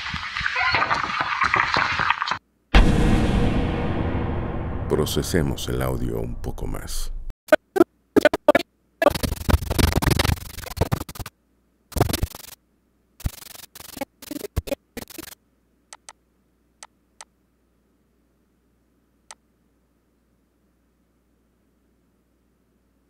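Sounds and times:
bursts of scratchy noise and crackle: 9.0 - 11.3, 13.2 - 15.4.

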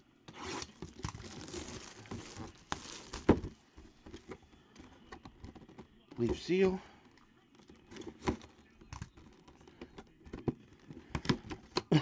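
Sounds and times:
shrink wrap crinkling and tearing: 0.4 - 3.6.

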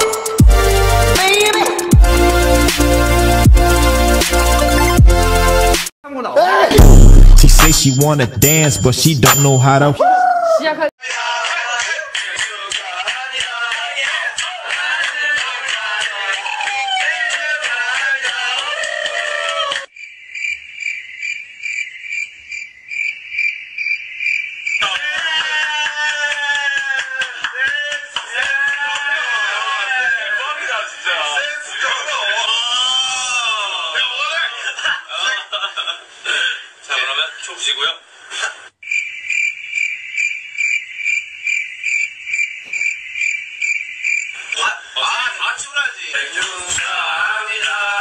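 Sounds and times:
loud voice: 6.1 - 10.0
laughter: 11.0 - 18.7, 24.8 - 30.2, 33.5 - 36.7
cricket chirping: 19.9 - 24.8, 38.8 - 44.6.

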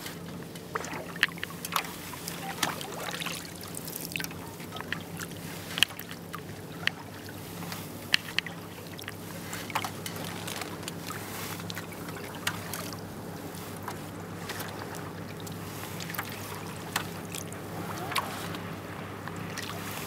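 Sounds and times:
paddle pulling through water: 0.0 - 20.0
steady low hum: 0.0 - 20.0
water splashing and dripping: 0.6 - 7.1.

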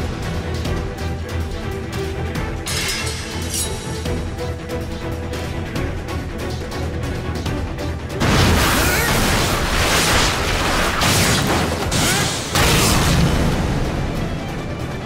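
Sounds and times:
dramatic music: 0.0 - 15.0.

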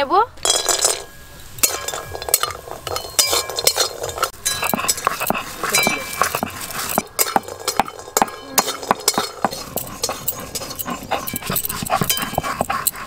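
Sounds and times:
stone roller grinding on stone: 0.5 - 13.0.

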